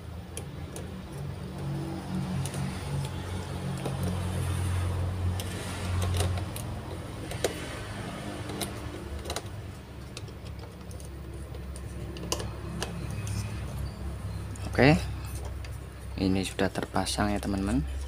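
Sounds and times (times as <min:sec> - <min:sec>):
plastic parts clicking together: 0:02.3 - 0:13.8.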